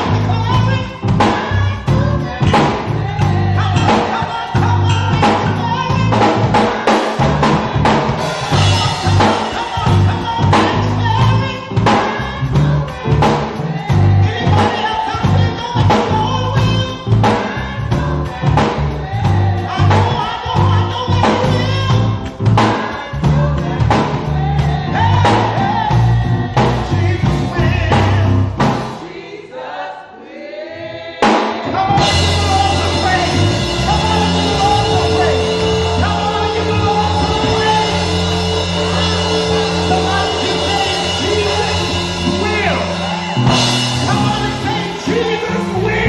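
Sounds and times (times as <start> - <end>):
gospel band and choir: 0.0 - 46.0
lone sung line: 31.6 - 46.0.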